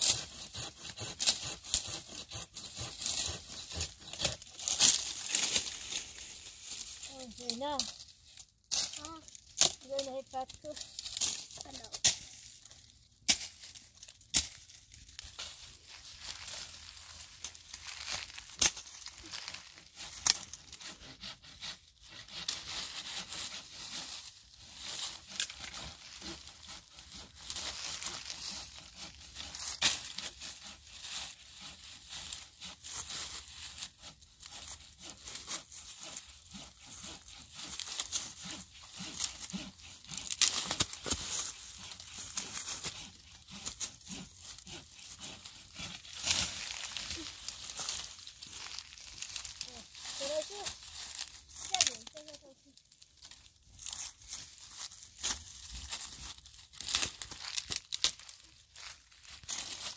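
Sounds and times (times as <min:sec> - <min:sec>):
dry leaves rustling and crackling: 0:02.7 - 0:20.9, 0:22.3 - 0:59.9
twigs snapping: 0:56.8 - 0:58.9.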